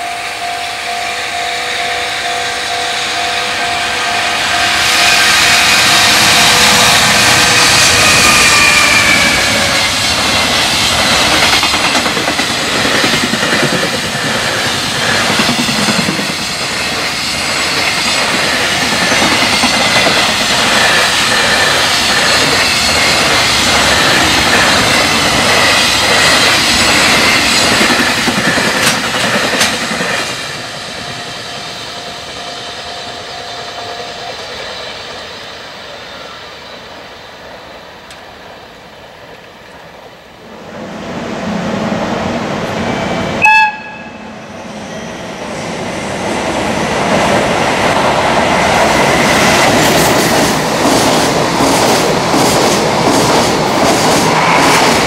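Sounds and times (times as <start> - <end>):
crossing warning bell ringing: 0.0 - 10.7, 30.4 - 35.0, 42.9 - 45.8.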